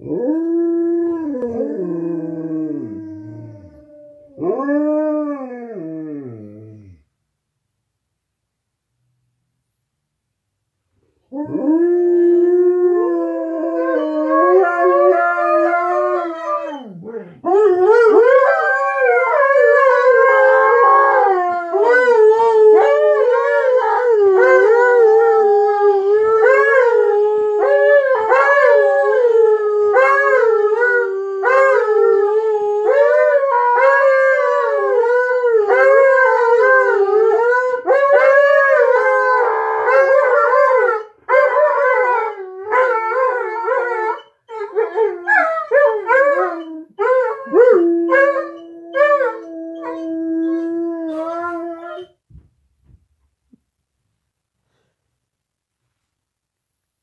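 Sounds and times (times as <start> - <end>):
dogs howling: 11.3 - 52.1.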